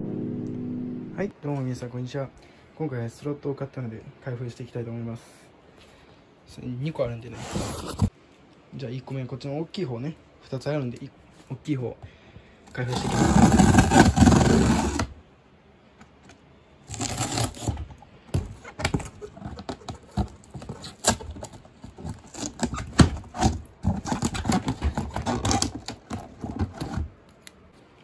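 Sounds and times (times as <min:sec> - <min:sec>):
cardboard scraping: 0:07.3 - 0:08.1, 0:12.7 - 0:15.2, 0:16.9 - 0:27.4
scissors slitting packing tape: 0:16.9 - 0:17.8, 0:18.8 - 0:27.6.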